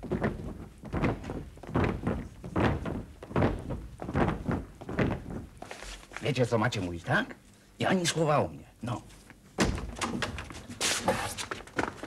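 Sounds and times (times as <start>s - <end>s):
footsteps on wooden boards: 0.0s - 6.3s, 9.3s - 12.0s.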